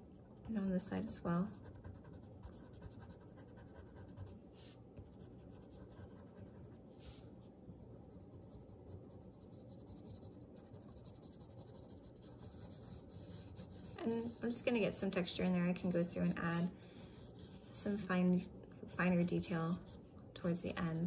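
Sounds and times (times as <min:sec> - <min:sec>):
pencil scratching on paper: 0:01.4 - 0:07.2, 0:08.2 - 0:18.2, 0:18.8 - 0:20.2.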